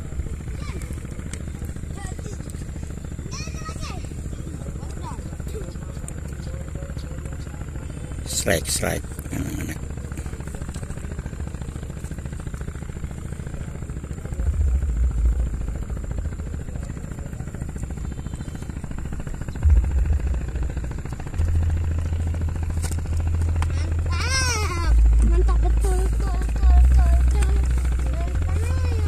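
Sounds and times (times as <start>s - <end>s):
wind buffeting microphone: 14.4s - 17.6s, 18.8s - 29.0s.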